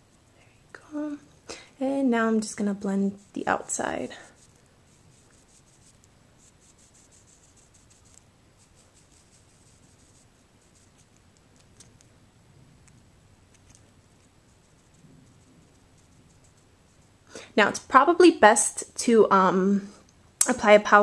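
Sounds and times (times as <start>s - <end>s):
brush scratching on skin: 2.5s - 12.1s, 12.9s - 17.2s.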